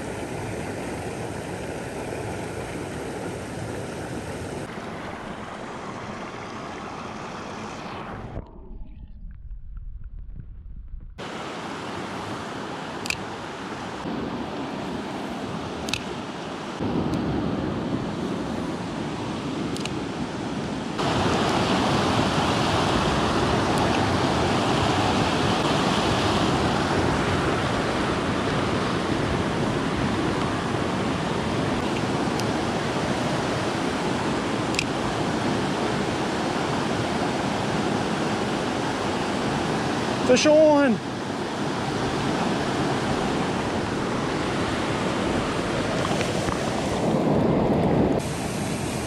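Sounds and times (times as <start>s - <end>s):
creek rushing over rocks: 0.0s - 8.3s, 21.0s - 49.0s.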